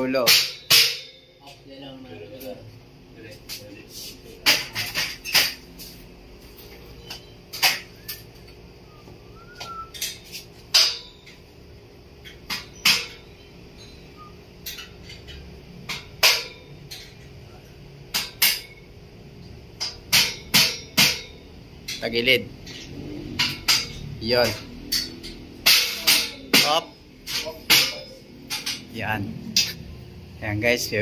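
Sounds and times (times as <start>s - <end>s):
hammer knocking on metal grill: 0.0s - 1.2s.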